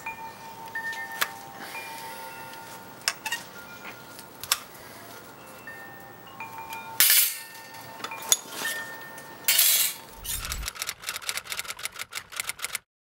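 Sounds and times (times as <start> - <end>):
burnisher scraping ringing steel: 6.9 - 10.6
fast sharp clicks: 10.3 - 12.9.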